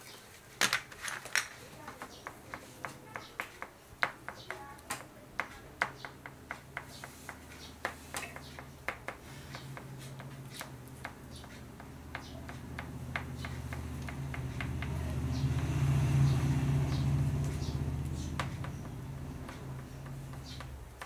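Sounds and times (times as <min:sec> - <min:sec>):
crayon tapping on paper: 0:01.8 - 0:15.8, 0:17.9 - 0:21.0.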